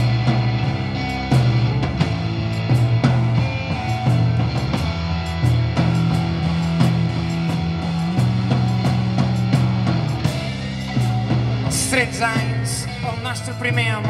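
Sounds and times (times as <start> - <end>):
drum kit: 0.0 - 14.0
electric guitar: 0.0 - 14.0.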